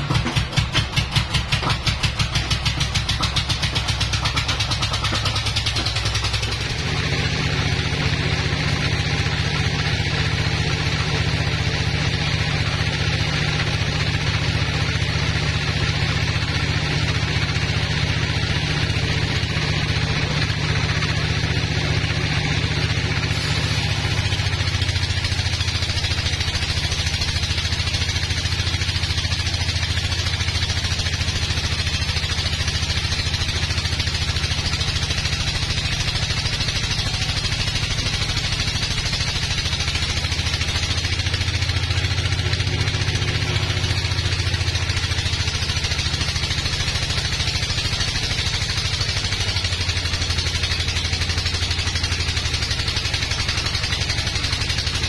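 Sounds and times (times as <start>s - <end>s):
sawmill engine drone: 0.0s - 55.0s
saw blade hissing through wood: 23.3s - 25.2s.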